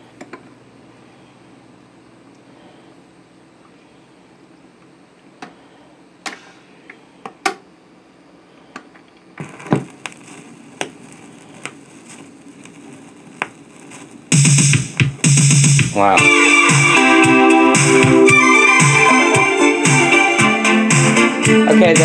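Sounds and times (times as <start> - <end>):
loud music from speakers: 14.4 - 22.0.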